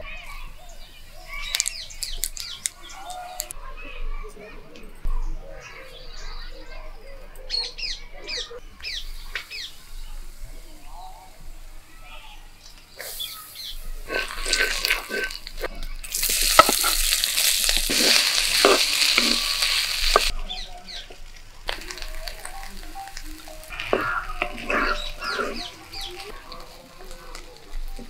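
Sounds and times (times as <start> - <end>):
loud sizzle: 8.7 - 28.0
food frying in hot oil: 12.9 - 28.0
spoon scraping a pan: 14.0 - 20.4, 21.0 - 28.0.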